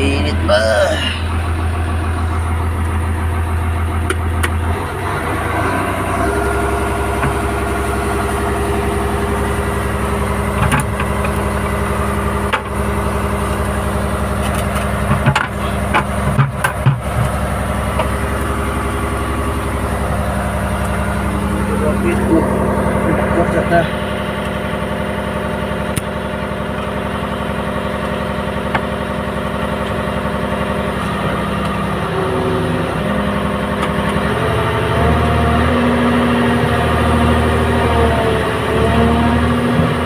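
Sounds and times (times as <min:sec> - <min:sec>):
diesel engine hum: 0:00.0 - 0:40.0
sharp knocks and rattles: 0:10.5 - 0:11.4, 0:14.4 - 0:18.2.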